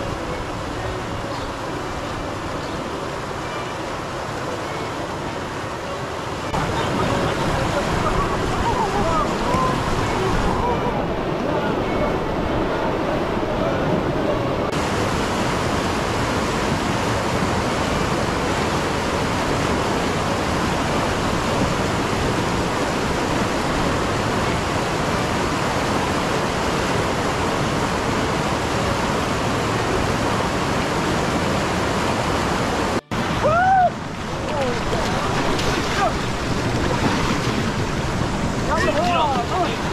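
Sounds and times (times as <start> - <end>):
white-water rapids roaring: 0.0 - 39.9
person crying out: 33.4 - 34.0.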